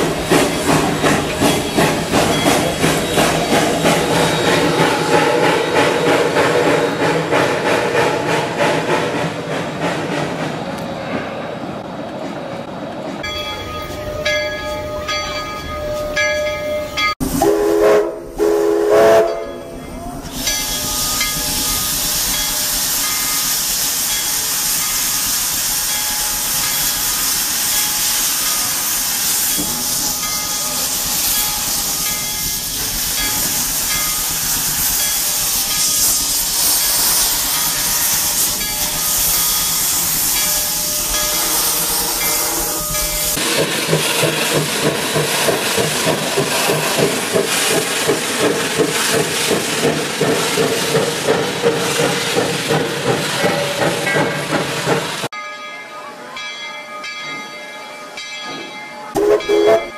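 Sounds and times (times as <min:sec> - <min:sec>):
steam locomotive whistle: 0:17.2 - 0:19.6, 0:35.2 - 0:43.4, 0:59.2 - 0:59.9
loud hiss of escaping steam: 0:20.2 - 0:55.3.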